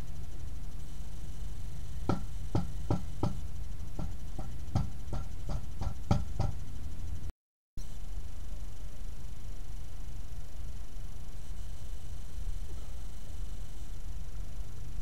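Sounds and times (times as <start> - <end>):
steady low hum: 0.0 - 15.0
sharp ringing knocks on wood: 2.1 - 3.4, 4.0 - 6.6.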